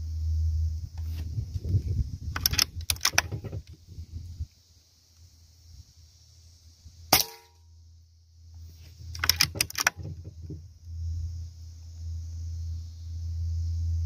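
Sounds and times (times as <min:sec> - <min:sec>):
low steady rumble: 0:00.0 - 0:14.0
rifle action clicking: 0:02.3 - 0:03.7, 0:09.2 - 0:10.1
air rifle shot: 0:07.1 - 0:07.6.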